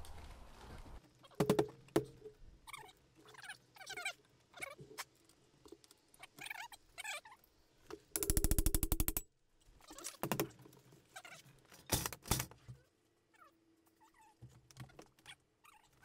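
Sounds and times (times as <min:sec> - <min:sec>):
fast mechanical tool rattle: 0:08.2 - 0:09.2.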